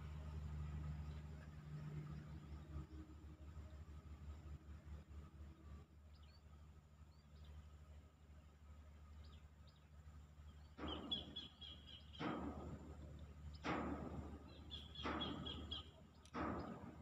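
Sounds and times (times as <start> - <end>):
steady low hum: 0.0 - 17.0
bird chirping: 9.1 - 12.4, 14.4 - 16.8.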